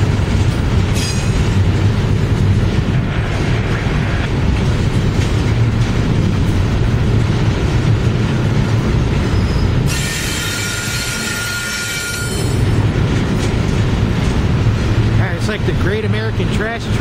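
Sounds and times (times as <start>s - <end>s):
steel wheels rumbling on rail: 0.0s - 17.0s
high-pitched wheel squeal: 9.3s - 12.6s.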